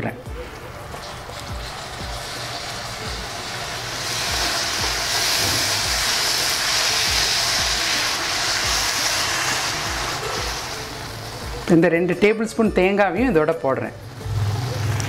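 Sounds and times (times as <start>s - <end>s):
background music with low beat: 0.0s - 15.0s
syrup boiling and hissing in a pan: 0.3s - 11.9s.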